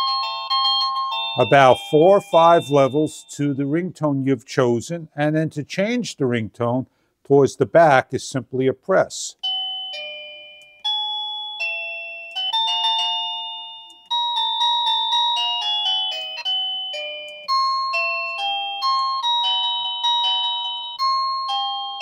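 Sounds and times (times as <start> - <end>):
electronic doorbell chime melodies: 0.0 - 3.9, 9.4 - 22.0.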